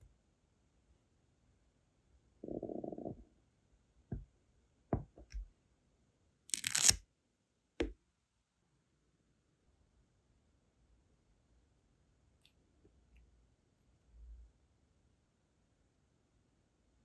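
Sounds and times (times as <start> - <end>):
stamp peeling off wax: 6.5 - 7.0.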